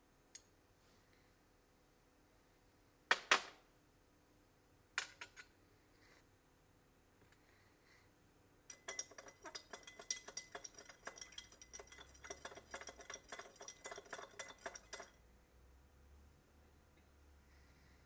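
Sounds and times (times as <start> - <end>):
spoon clinking against glass: 8.7 - 15.2.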